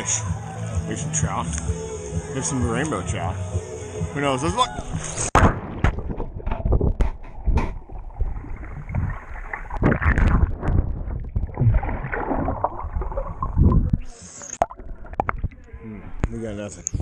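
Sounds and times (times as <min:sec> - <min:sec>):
muffled water sloshing: 0:05.0 - 0:16.3.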